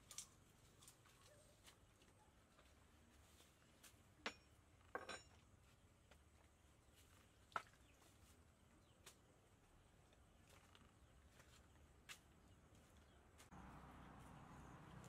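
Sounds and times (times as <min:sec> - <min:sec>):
faint sharp clinks and knocks: 0:04.2 - 0:05.4.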